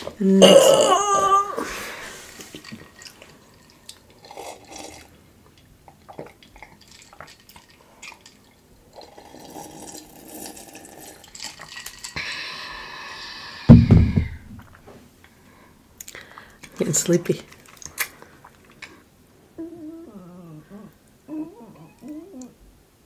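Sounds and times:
person burping: 0.2s - 1.7s
person gulping a drink: 2.4s - 12.2s.

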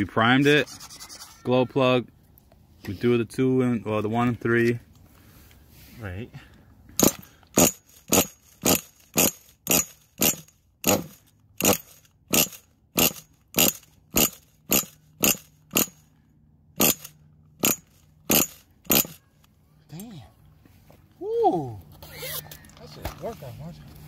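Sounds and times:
engine cranking without firing: 6.9s - 16.1s, 16.8s - 19.2s.

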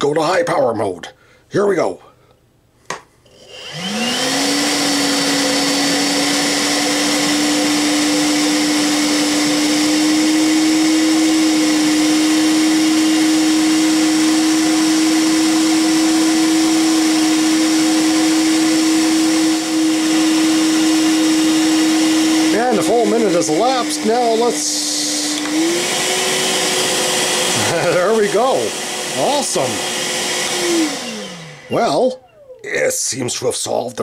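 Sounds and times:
vacuum motor whine: 3.3s - 32.6s
vacuum switch click: 25.3s - 25.6s.

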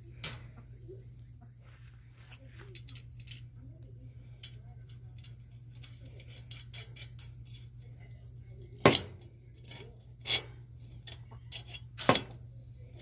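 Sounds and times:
low steady hum: 0.0s - 13.0s
metal tools clinking: 2.6s - 9.0s.

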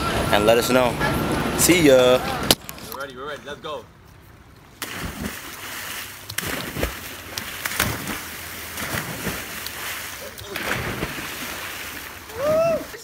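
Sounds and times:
people splashing into water: 4.8s - 13.0s
water washing: 4.8s - 13.0s.

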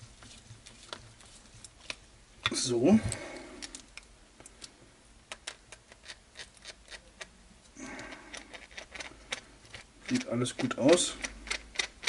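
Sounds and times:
plastic parts clicking and tapping: 5.3s - 7.3s, 8.3s - 12.0s.

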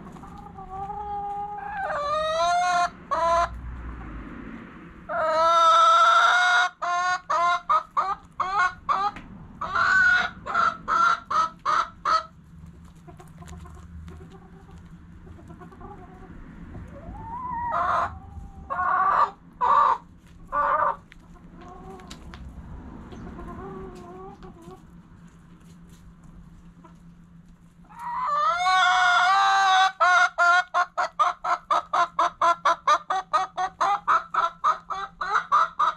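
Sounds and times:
chickens clucking: 0.0s - 4.3s, 5.0s - 35.9s
chicken squawking: 0.2s - 3.6s, 5.1s - 12.3s, 16.9s - 21.0s, 27.9s - 35.9s.

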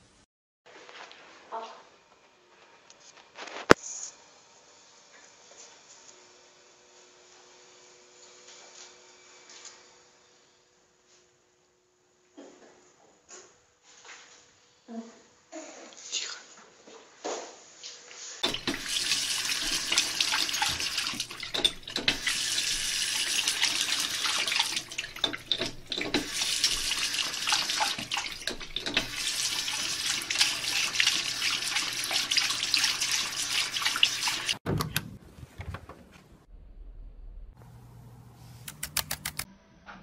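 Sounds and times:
faucet water splashing into basin: 18.4s - 34.6s.

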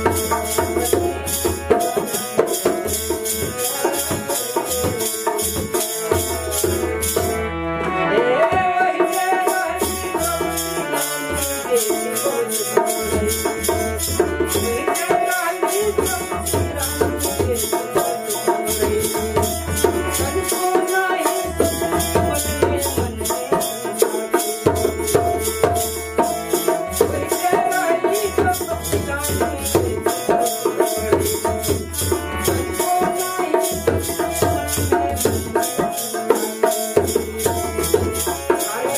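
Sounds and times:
harmonium melody: 0.0s - 38.9s.

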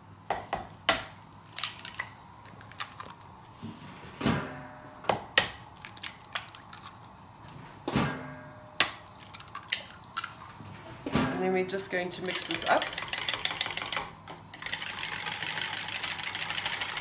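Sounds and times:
eggshells cracking: 1.2s - 3.5s, 5.4s - 7.3s, 8.8s - 10.6s.

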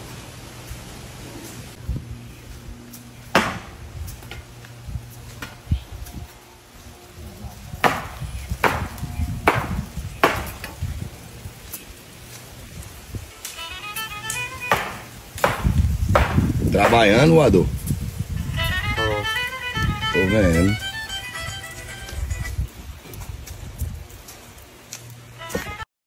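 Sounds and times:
hand tools chopping dirt: 3.3s - 4.4s, 7.8s - 10.8s, 14.2s - 17.5s.

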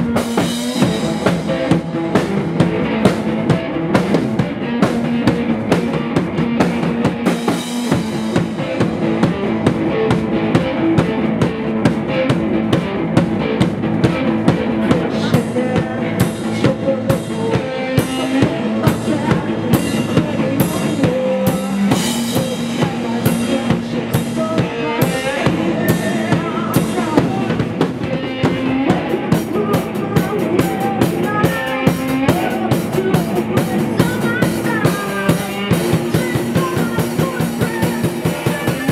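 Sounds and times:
drum kit beat: 0.0s - 38.9s
electric guitar: 0.0s - 38.9s
live rock band playing: 0.0s - 38.9s
man singing: 14.0s - 38.9s.

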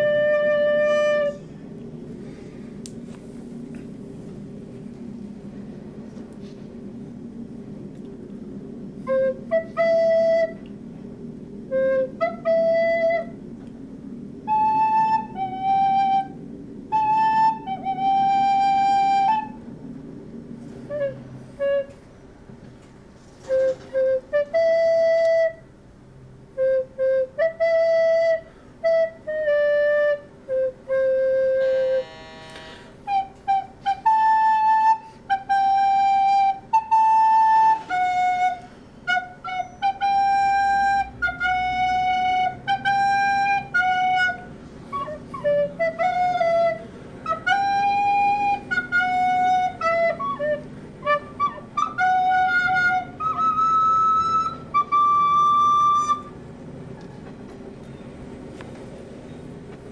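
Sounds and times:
recorder melody: 0.0s - 1.5s, 26.6s - 56.3s
faint low hum: 0.0s - 59.9s.

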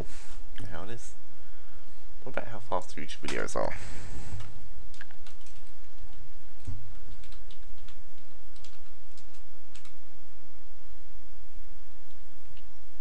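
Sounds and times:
steady low hum: 0.0s - 13.0s
keystrokes on computer keyboard: 4.4s - 10.0s.

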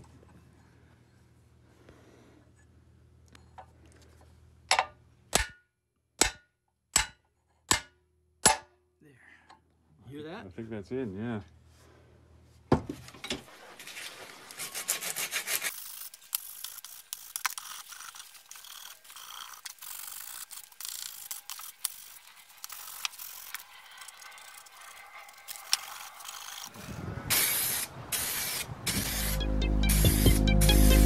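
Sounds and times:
rag scraping inside metal casing: 22.2s - 26.8s
aerosol spray can hissing: 27.3s - 31.0s.

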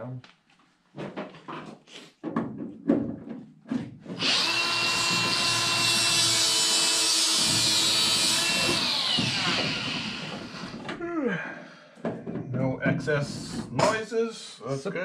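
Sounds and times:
power tool motor winding down: 4.2s - 10.8s.

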